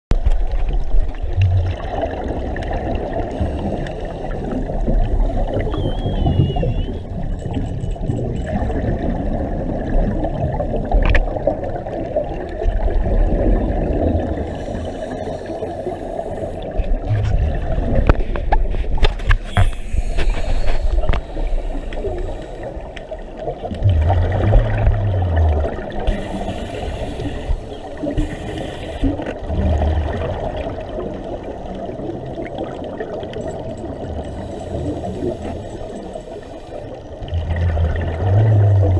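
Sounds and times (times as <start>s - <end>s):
underwater air bubbling: 0.1s - 38.9s.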